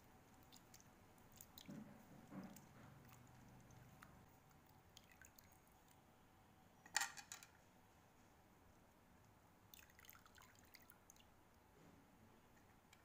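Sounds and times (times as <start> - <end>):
water splashing in a steel bowl: 0.4 - 4.2, 4.9 - 5.6, 9.7 - 11.3.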